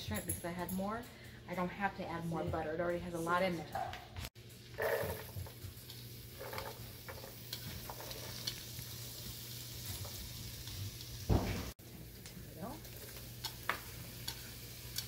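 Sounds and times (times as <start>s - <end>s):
onions sizzling in butter: 4.4s - 15.0s
thump: 11.3s - 11.7s.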